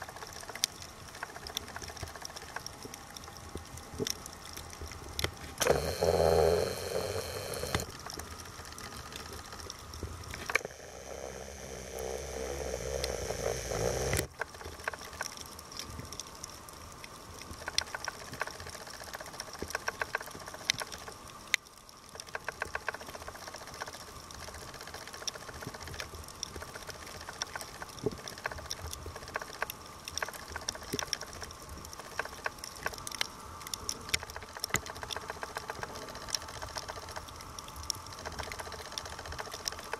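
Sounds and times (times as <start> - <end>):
dense crackle of clicks: 0.0 - 39.9
underwater exhaled bubbles gurgling: 5.6 - 8.2, 10.4 - 14.3.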